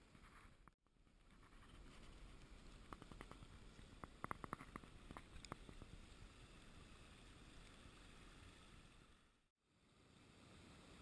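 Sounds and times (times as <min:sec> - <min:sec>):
small ticks: 0:01.7 - 0:05.9.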